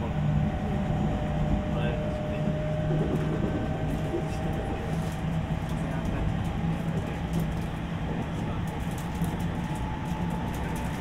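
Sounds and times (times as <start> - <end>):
traction motor hum: 0.0 - 6.7
train wheels rolling on rails: 2.3 - 11.0.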